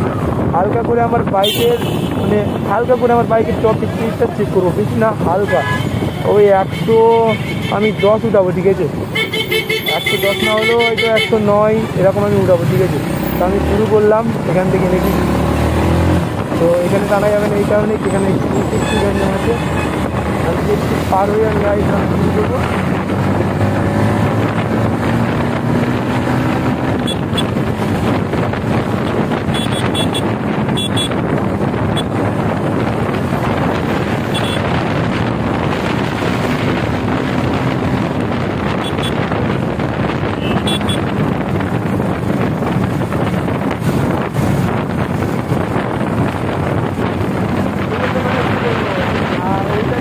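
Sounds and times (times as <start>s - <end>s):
wind rushing over microphone: 0.0s - 50.0s.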